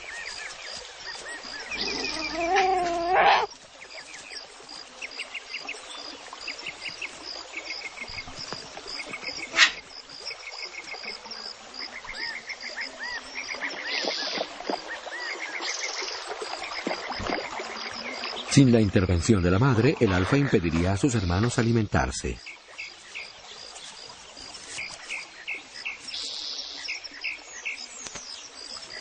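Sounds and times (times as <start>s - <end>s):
insects chirping: 0.0s - 29.0s
fox cub whining: 1.8s - 3.5s.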